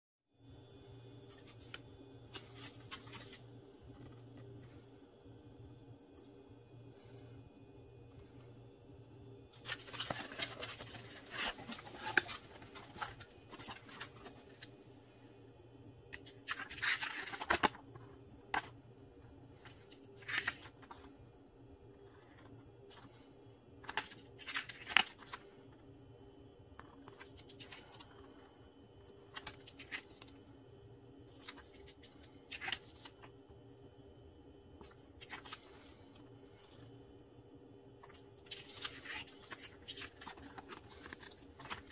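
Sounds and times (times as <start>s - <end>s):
paper pages rustling: 1.3s - 4.8s, 9.6s - 14.8s, 16.1s - 18.8s, 19.5s - 21.3s, 22.0s - 25.7s, 26.8s - 28.4s, 29.2s - 30.4s, 31.3s - 33.4s, 34.8s - 36.9s, 38.0s - 41.9s.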